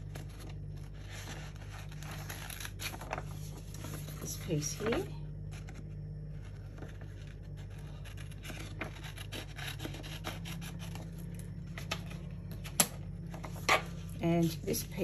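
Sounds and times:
paper sheet rustling: 0.0 - 9.3
scissors snipping paper: 7.6 - 11.0.

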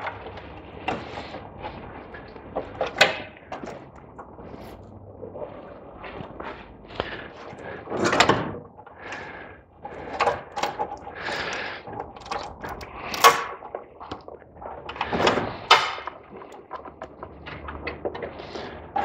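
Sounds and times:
plastic clips clicking and rattling: 10.1 - 14.3.

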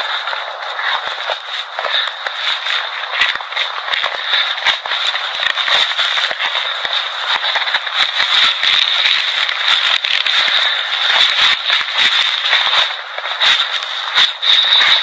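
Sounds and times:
crackling static hiss: 0.0 - 15.0.

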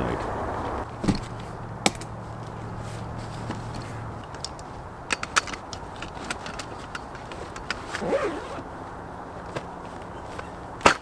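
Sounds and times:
camping gear clicks and knocks: 0.9 - 2.6, 3.2 - 11.0.

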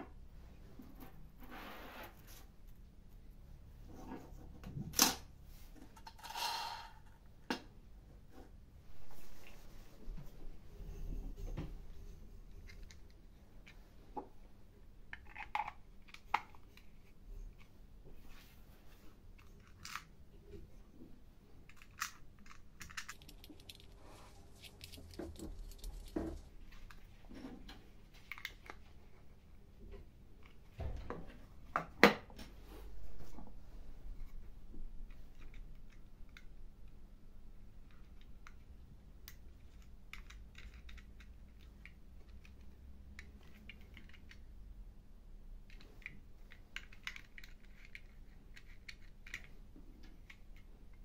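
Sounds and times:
small parts clicking and tapping: 19.4 - 20.6, 21.6 - 24.0, 37.8 - 44.6, 45.6 - 51.0.

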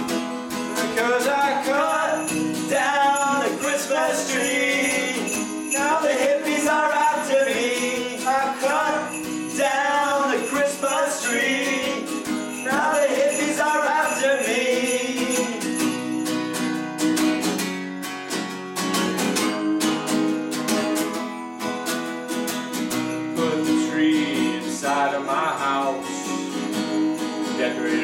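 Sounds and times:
acoustic guitar strumming: 0.0 - 28.0
person singing: 0.7 - 15.8, 23.4 - 26.6, 27.5 - 28.0.

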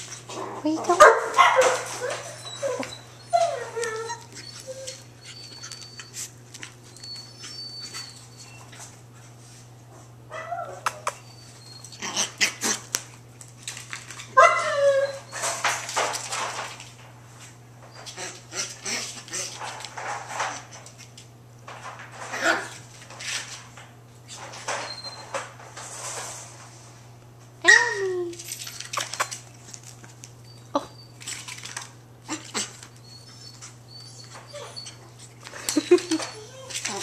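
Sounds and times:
puppies yipping: 1.2 - 8.8, 14.4 - 15.7, 32.3 - 37.0.

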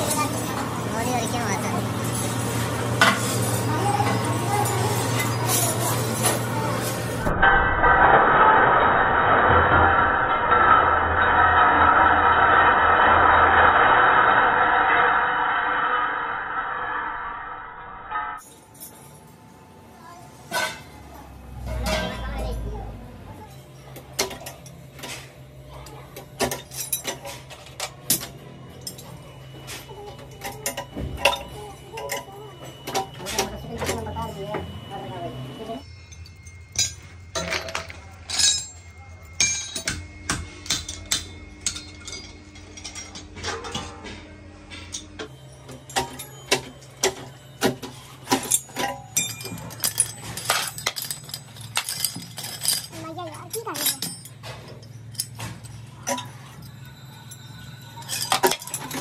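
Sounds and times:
metal parts clinking: 0.0 - 14.0, 18.1 - 19.6, 21.6 - 22.8, 23.4 - 34.9, 35.8 - 59.0
low machine hum: 0.0 - 59.0
sharp metallic clinks and knocks: 35.8 - 59.0.

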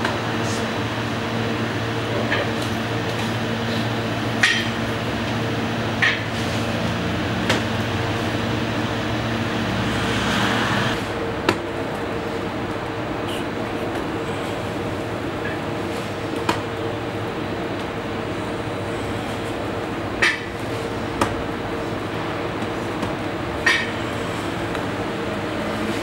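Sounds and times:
low machine hum: 0.0 - 26.0
rushing swell: 8.7 - 11.0.

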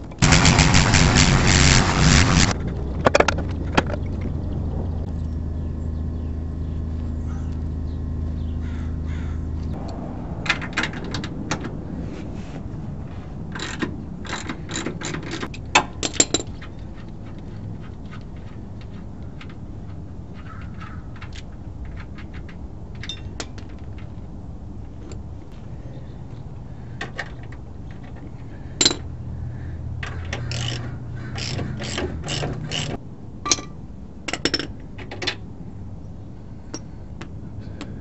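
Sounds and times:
low steady hum: 0.0 - 15.7.

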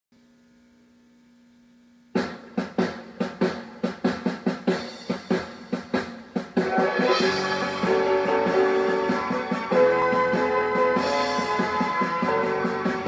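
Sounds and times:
faint hum: 0.1 - 2.2
drum beat: 2.2 - 13.0.

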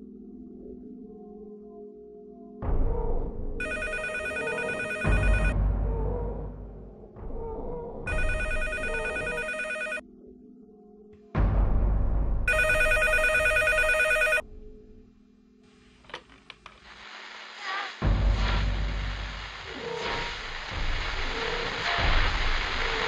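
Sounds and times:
low droning music: 0.0 - 3.6, 5.5 - 8.1, 10.0 - 12.5, 14.4 - 15.6
telephone ringing: 3.6 - 5.6, 8.1 - 10.0, 12.5 - 14.4.

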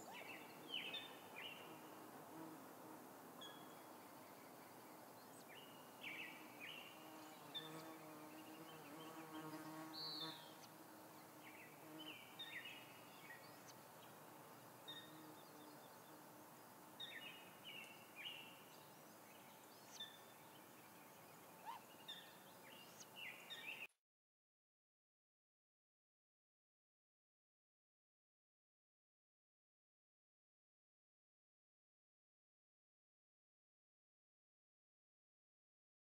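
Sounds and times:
songbirds chirping: 0.0 - 23.9
faint forest ambience: 0.0 - 24.0.

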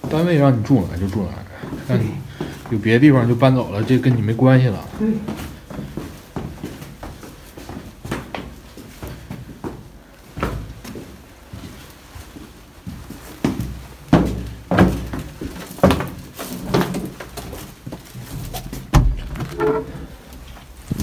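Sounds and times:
footsteps in echoing hallway: 0.0 - 21.0
heavy thud: 18.9 - 19.6.

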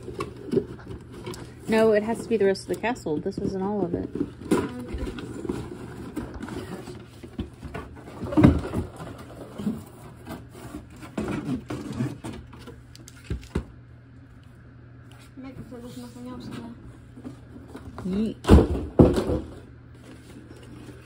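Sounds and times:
toy box and packaging rustling: 0.0 - 13.6.

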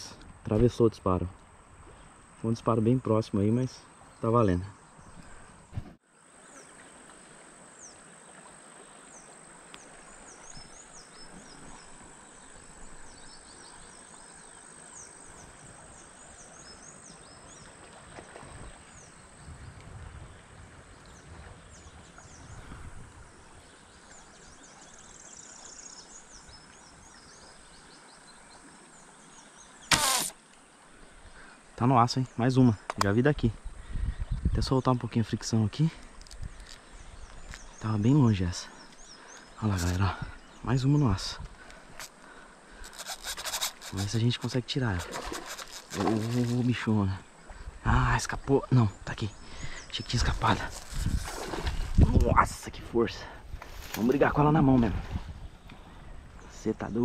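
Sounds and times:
sharp slingshot snap: 29.9 - 30.4.

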